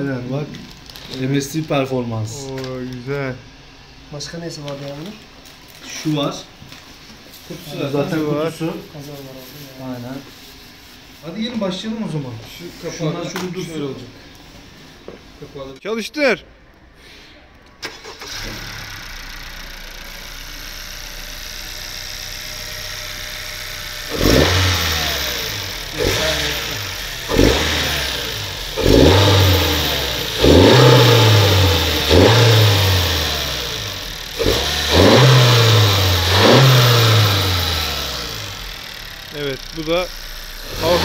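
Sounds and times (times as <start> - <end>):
car engine starting and idling: 17.6 - 41.0
car engine revving: 17.8 - 41.0.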